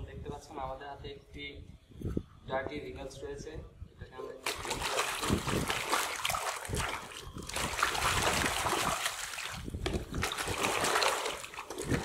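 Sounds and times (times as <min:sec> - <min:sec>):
hands scrubbing toy in water: 0:04.4 - 0:12.0
water splashing: 0:04.4 - 0:12.0.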